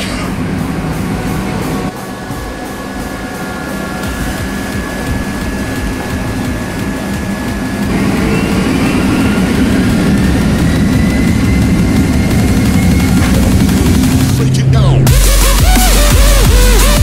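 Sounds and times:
jet engines rumbling and whining: 0.0 - 17.0.

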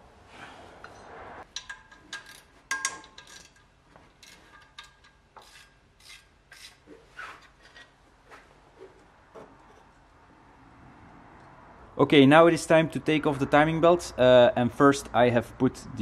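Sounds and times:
metal scraping rub: 0.4 - 10.0
metal tools clinking: 0.8 - 6.2.

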